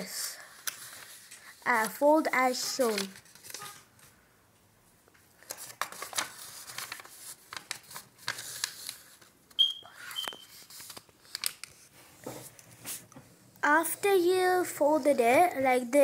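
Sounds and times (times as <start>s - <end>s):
paper rustling and crinkling: 0.0s - 4.1s, 5.3s - 9.4s, 10.2s - 13.1s
brief high beeps: 9.6s - 10.5s.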